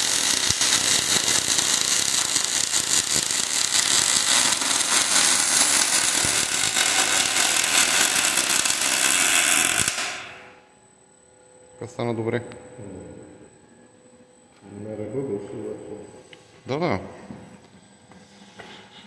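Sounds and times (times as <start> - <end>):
welding arc crackling hiss: 0.0 - 10.6.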